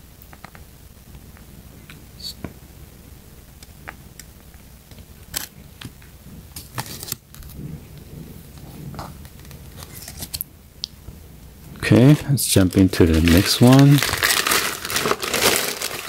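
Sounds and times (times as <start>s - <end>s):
paper leaflet rustling: 12.1s - 16.0s.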